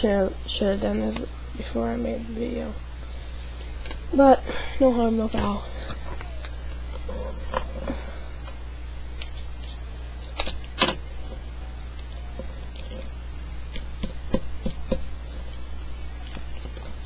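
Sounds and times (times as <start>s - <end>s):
steady low hum: 0.0s - 17.0s
paper folding and crinkling: 15.2s - 17.0s.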